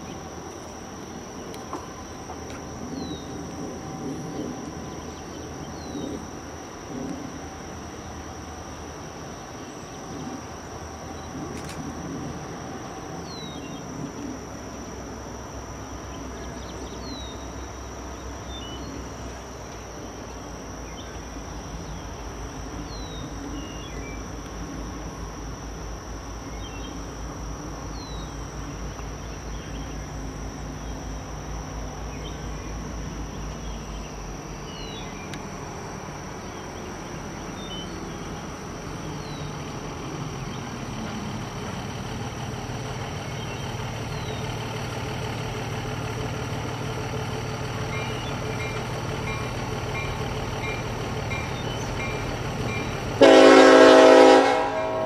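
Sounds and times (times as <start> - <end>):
diesel locomotive engines rumbling: 0.0 - 55.0
high insect drone: 0.0 - 55.0.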